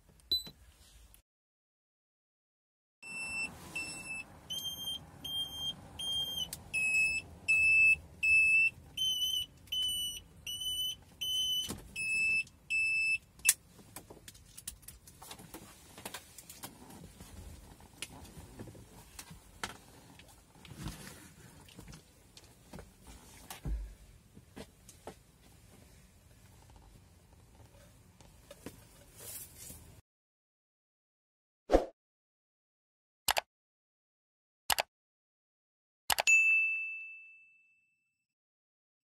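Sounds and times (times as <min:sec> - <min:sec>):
electronic warning beeper: 0:03.0 - 0:13.2
handling of plastic and cables: 0:13.6 - 0:23.7.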